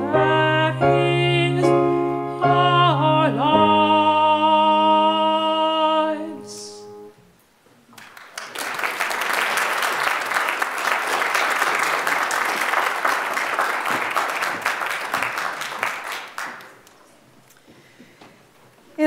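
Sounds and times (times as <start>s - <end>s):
audience applauding: 8.0s - 17.1s.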